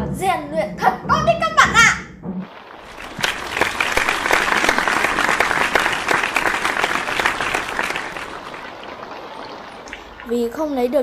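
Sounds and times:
crowd applauding: 2.7 - 10.3.

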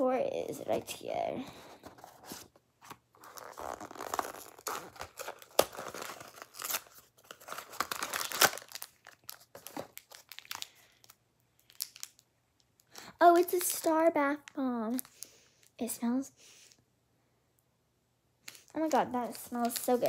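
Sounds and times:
gift packaging crinkling: 3.1 - 15.4, 18.5 - 20.0
paper ripping: 3.2 - 10.3.

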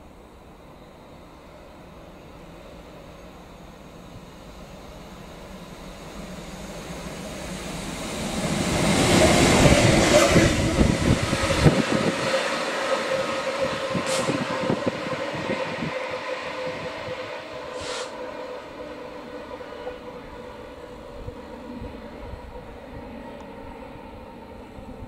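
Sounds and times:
diesel locomotive passing: 0.0 - 25.0
short high hiss: 14.0 - 14.4, 17.8 - 18.2.

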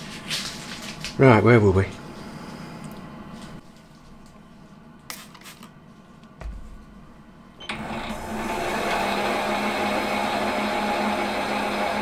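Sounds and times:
dull thump: 6.4 - 7.1.

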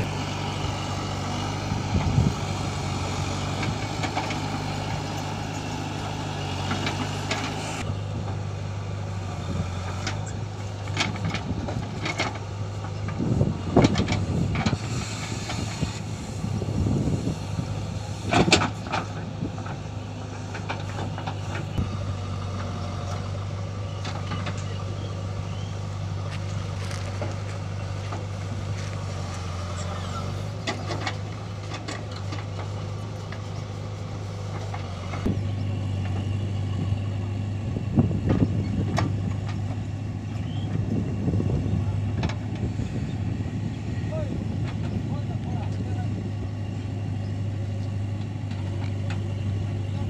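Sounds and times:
diesel engines running: 0.0 - 50.0
falling earth and stones: 26.0 - 32.8.

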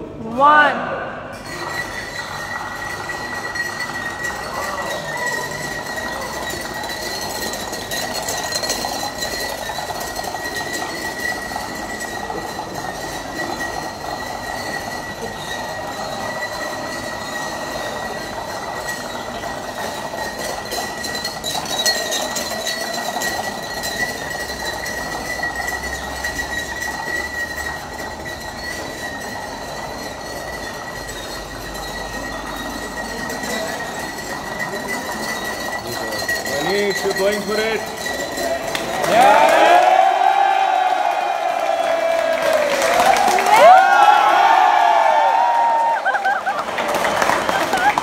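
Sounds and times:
high ringing glass note: 1.2 - 39.0
shot glasses clattering: 1.3 - 39.8.

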